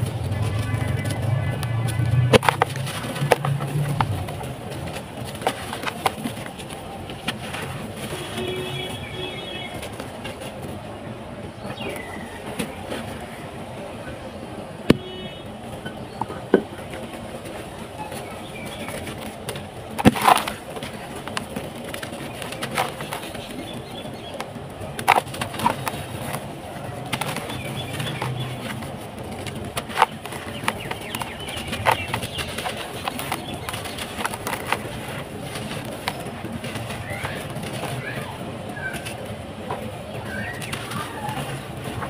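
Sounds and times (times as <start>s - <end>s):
lumps cracking: 16.3s - 42.0s.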